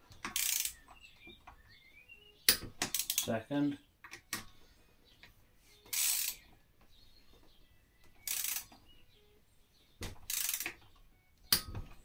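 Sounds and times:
torque wrench ratchet clicking: 0.2 - 0.8, 2.9 - 3.3, 5.9 - 6.4, 8.2 - 8.7, 10.3 - 10.8.

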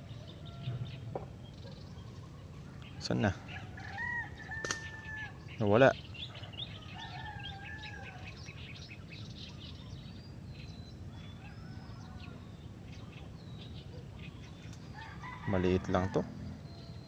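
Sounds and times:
low outdoor rumble: 0.0 - 17.0
small birds chirping: 0.0 - 17.0
distant rooster crowing: 0.1 - 1.3, 3.0 - 5.4, 6.3 - 8.4, 11.1 - 12.6, 14.9 - 17.0.

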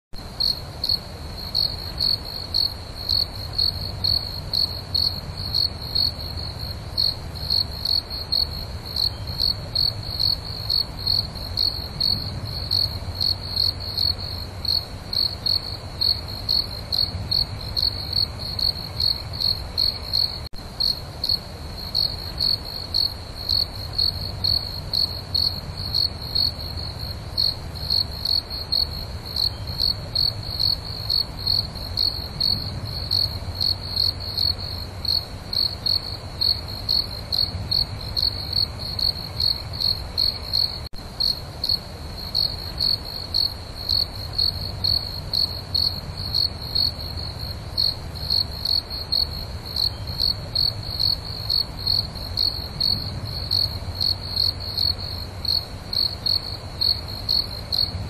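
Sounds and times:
cricket chirping: 0.2 - 58.0.

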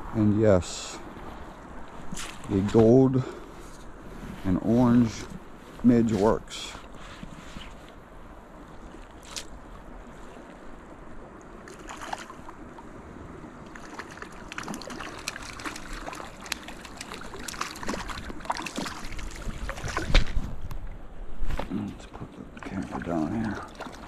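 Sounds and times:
creek water running over rocks: 13.6 - 20.4, 21.8 - 24.0
fish splashing at surface: 13.7 - 20.4
wind on microphone: 17.9 - 21.7.

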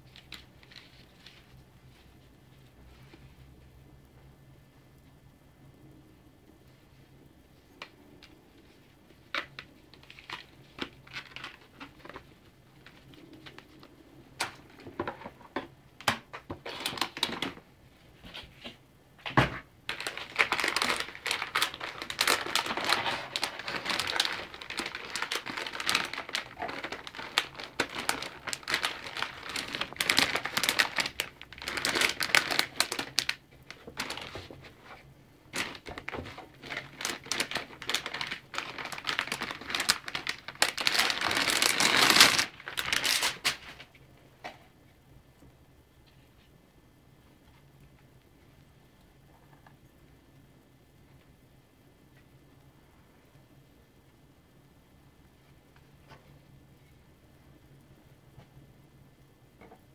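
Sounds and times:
plastic crinkling: 0.0 - 2.2, 7.7 - 17.6, 19.9 - 44.0.

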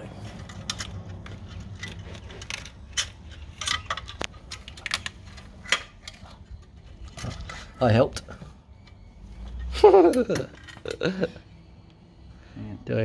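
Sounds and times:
metal tools clinking on engine: 0.3 - 11.2.

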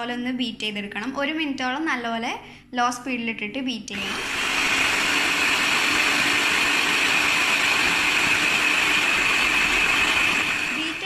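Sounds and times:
electric hand mixer whisking: 4.0 - 11.0.

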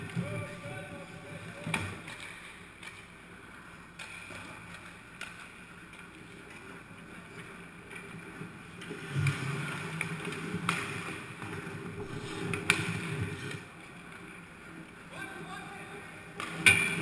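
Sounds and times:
skates scraping on ice: 6.2 - 13.7.

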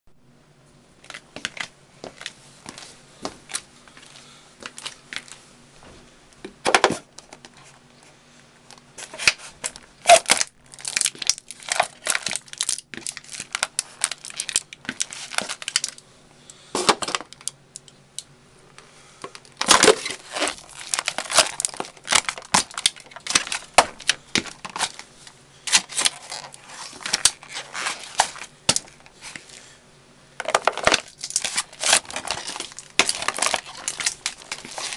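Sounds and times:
boots crushing cups: 19.2 - 25.0.

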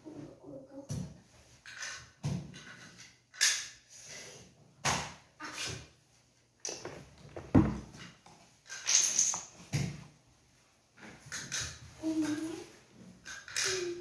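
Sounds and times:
plastic toys clattering: 1.6 - 4.2, 6.7 - 9.7, 11.1 - 14.0.

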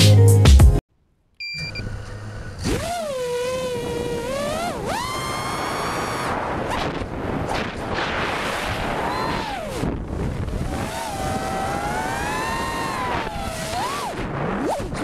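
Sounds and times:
drone motors whining: 1.6 - 7.5, 8.5 - 15.0
wind rush on microphone: 3.7 - 15.0.

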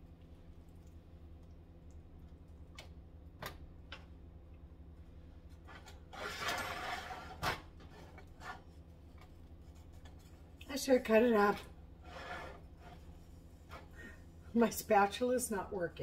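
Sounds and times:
steady low hum: 0.0 - 16.0
spatula scraping a skillet: 5.7 - 10.5, 12.0 - 14.2.

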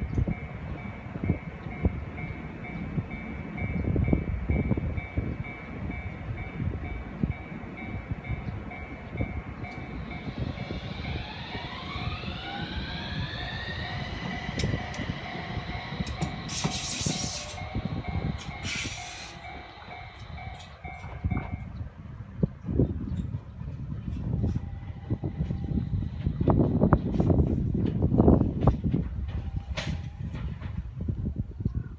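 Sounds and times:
level crossing warning bell: 0.0 - 21.7
tram motor whine accelerating: 0.0 - 21.8
tram rumble: 0.0 - 31.9.

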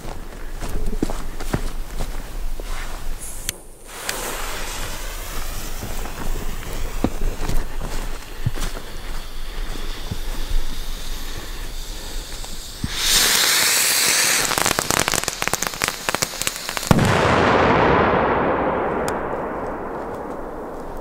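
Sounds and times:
sharp crackles: 0.0 - 21.0
firework hissing: 2.1 - 18.4
loud firework bang echoing: 16.8 - 21.0.

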